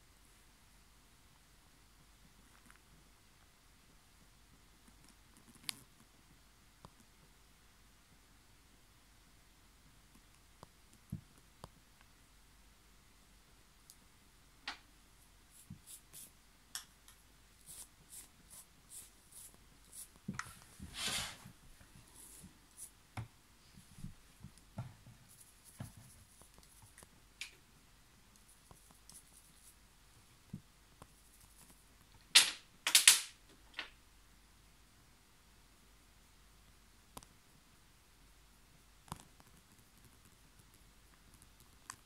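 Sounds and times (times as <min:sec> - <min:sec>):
small clicks and taps: 0:04.8 - 0:06.1, 0:39.0 - 0:42.0.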